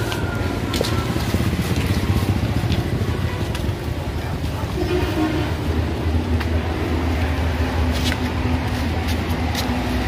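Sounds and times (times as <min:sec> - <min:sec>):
vehicle engine humming: 0:00.0 - 0:10.0.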